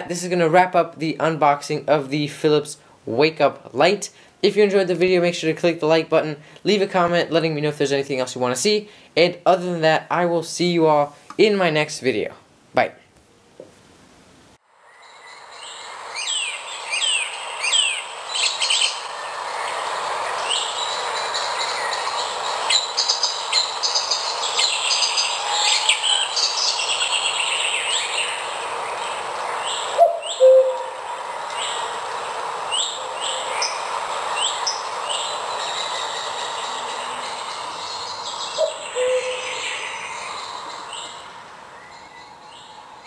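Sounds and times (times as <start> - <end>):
birds chirping and whistling: 15.0 - 31.9, 32.7 - 43.0
steady rushing background: 15.4 - 30.0, 30.9 - 38.9.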